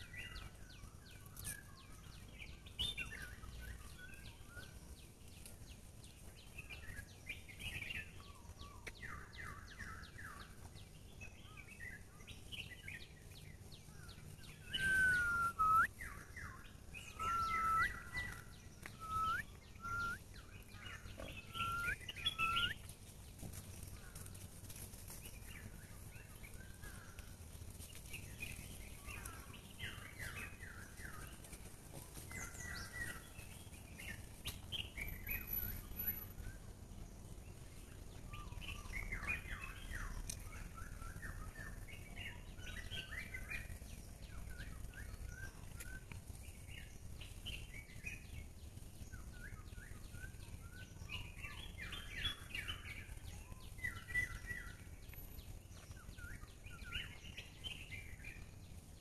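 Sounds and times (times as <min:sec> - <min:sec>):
faint low background noise: 0:00.0 - 0:59.0
songbirds chirping: 0:00.0 - 0:59.0.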